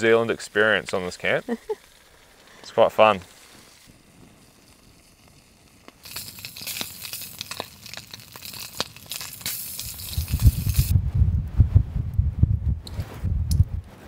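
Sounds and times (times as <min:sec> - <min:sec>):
campfire crackling and popping: 0:00.0 - 0:10.9
low rumble: 0:10.2 - 0:14.0.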